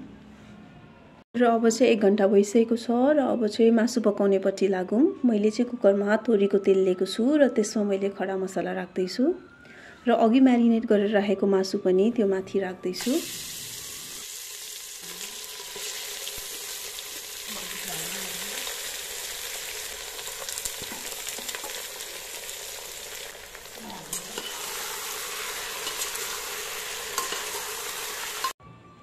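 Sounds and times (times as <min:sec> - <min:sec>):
meat sizzling in hot oil: 0:13.0 - 0:28.6.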